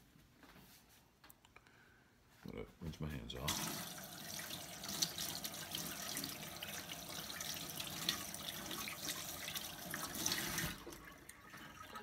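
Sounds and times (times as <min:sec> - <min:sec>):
faucet water running: 0:03.4 - 0:12.0.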